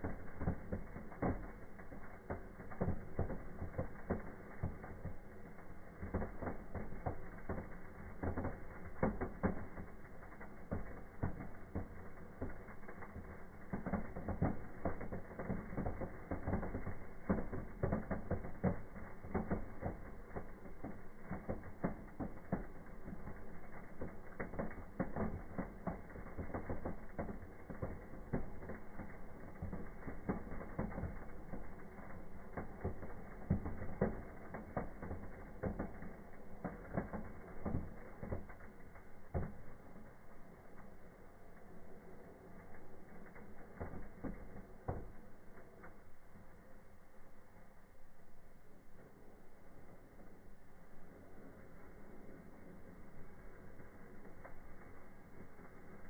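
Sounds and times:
crackle of firework sparks: 0:00.0 - 0:56.0.

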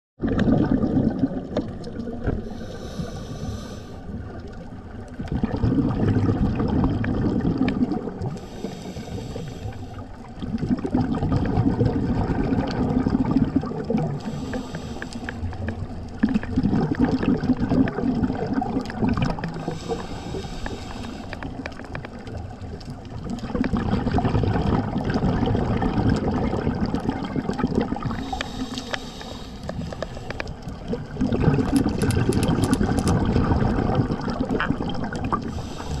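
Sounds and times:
gurgling exhaled bubbles: 0:00.2 - 0:36.0
regulator hissing inhale: 0:02.4 - 0:04.1, 0:08.3 - 0:10.2, 0:14.2 - 0:15.6, 0:19.6 - 0:21.6, 0:28.1 - 0:30.5, 0:35.4 - 0:36.0.

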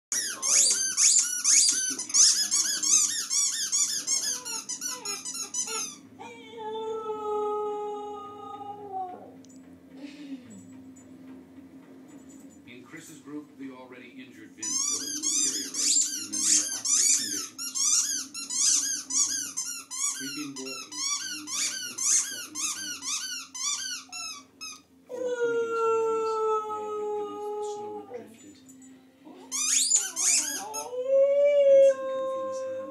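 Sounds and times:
dog squeaking: 0:00.1 - 0:06.3, 0:14.6 - 0:24.9, 0:29.4 - 0:31.0
dog howling: 0:04.2 - 0:09.4, 0:25.1 - 0:28.4, 0:29.8 - 0:32.9.

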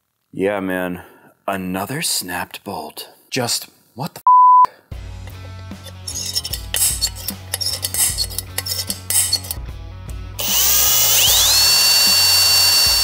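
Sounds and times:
hand tool clicks and scrapes: 0:05.7 - 0:09.6
electric power tool whining: 0:10.4 - 0:13.0.

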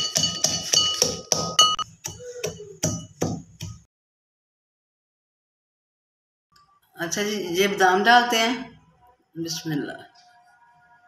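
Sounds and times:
pestle pounding in metal mortar: 0:00.0 - 0:03.9.

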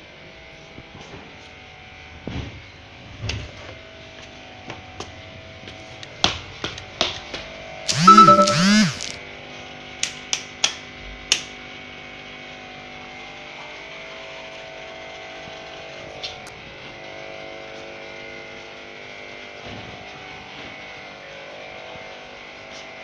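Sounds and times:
sharp clicks: 0:07.9 - 0:09.2.

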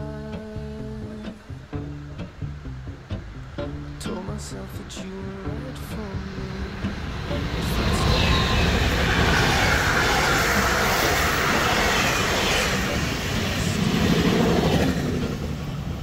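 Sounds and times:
locomotive whine: 0:00.0 - 0:16.0
train wheels rushing on rail: 0:05.5 - 0:16.0.

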